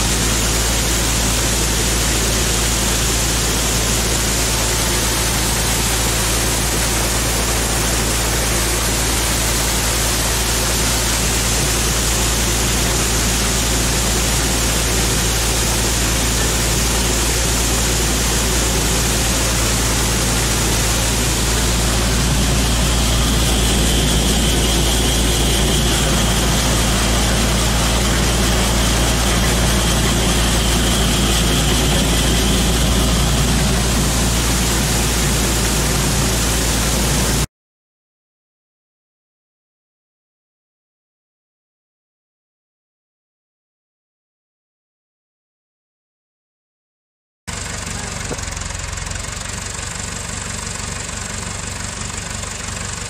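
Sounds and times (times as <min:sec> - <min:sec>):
thin steady whine: 0:00.0 - 0:37.4
combine engine hum: 0:00.0 - 0:37.5, 0:47.5 - 0:53.0
grain pouring from auger: 0:00.0 - 0:37.5, 0:47.5 - 0:53.0.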